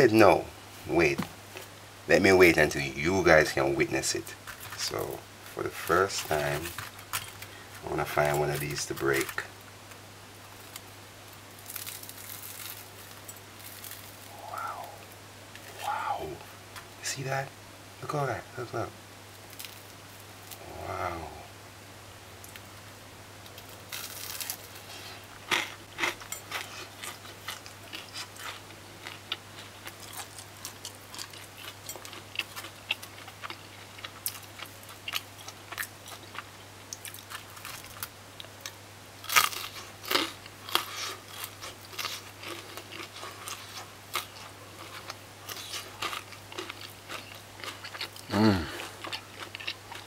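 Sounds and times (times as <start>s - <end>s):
crunching and chewing: 4.0s - 9.5s, 10.5s - 16.0s, 19.4s - 21.0s, 23.4s - 50.0s
fritters crackling broken apart: 4.3s - 14.8s, 19.3s - 20.7s, 23.4s - 50.0s.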